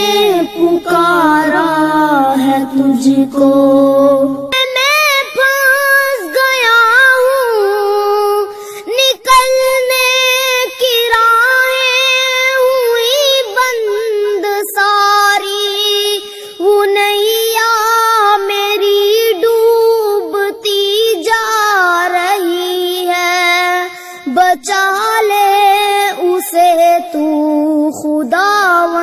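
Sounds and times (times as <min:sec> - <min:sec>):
high voice singing ornamented notes: 0:00.0 - 0:16.0.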